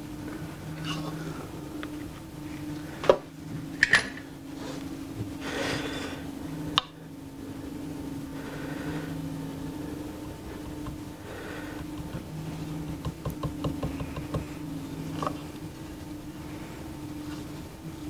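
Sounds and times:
steady low hum: 0.0 - 18.0
clicks and taps of hard parts: 13.0 - 14.5.

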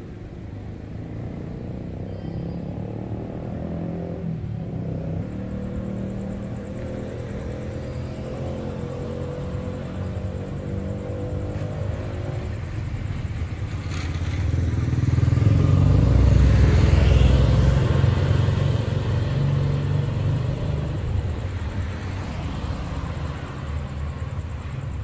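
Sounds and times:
background traffic: 0.0 - 25.0
car passing close by: 13.6 - 25.0.

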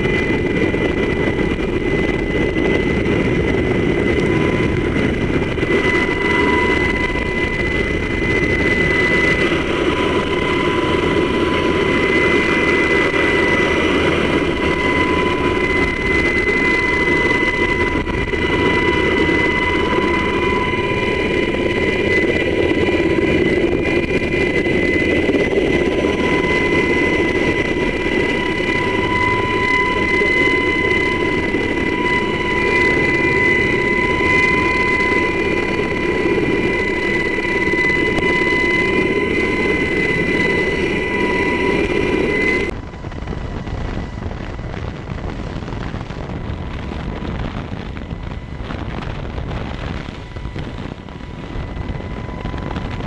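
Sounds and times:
helicopter rotor and turbine noise: 0.0 - 53.0.

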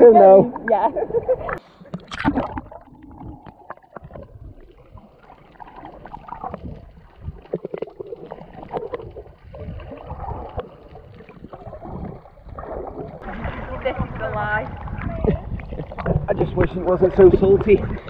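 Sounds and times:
underwater gurgling and bubbling: 0.7 - 18.0.

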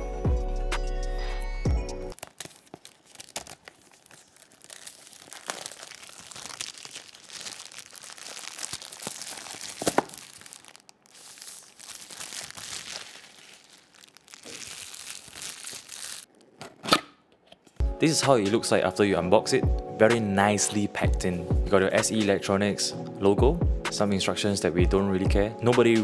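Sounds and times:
plastic wrap crinkling: 2.1 - 16.6
plastic wrap tearing: 2.1 - 16.6
sharp plastic crack: 5.2 - 11.0.

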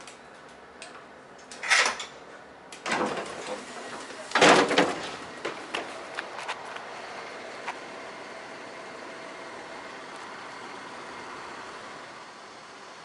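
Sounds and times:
train sliding doors banging: 2.8 - 6.7.

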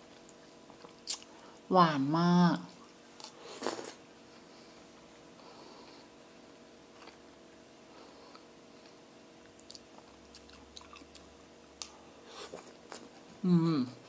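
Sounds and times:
faint chewing: 0.0 - 1.5, 6.9 - 7.2, 8.0 - 13.4.

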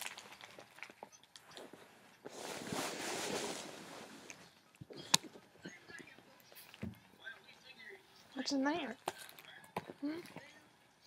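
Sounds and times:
wrapping paper rustling: 0.0 - 4.8.

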